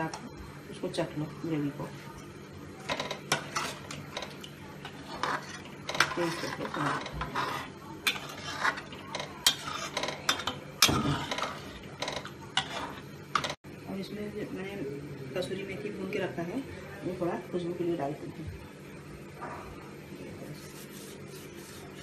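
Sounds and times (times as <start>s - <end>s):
metal ladle scraping a pot: 2.8s - 13.6s.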